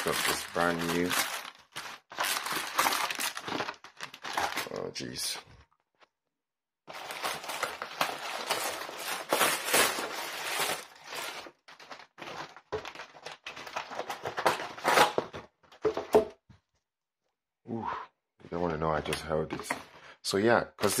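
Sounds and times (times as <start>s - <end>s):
plastic packaging crinkling: 0.0s - 5.1s, 6.9s - 15.3s.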